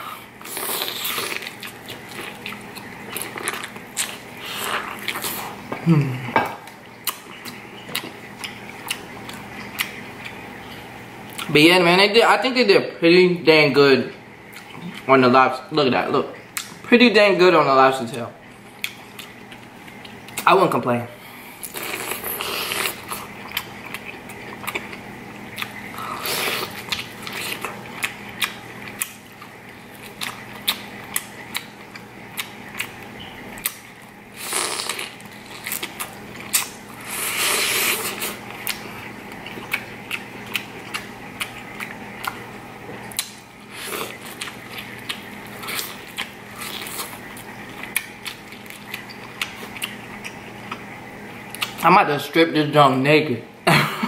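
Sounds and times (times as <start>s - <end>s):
wet mouth clicks chewing: 7.0s - 11.5s, 18.8s - 20.5s, 21.6s - 33.9s, 37.5s - 50.9s, 51.5s - 51.8s
teeth crunching corn kernels: 21.6s - 50.8s.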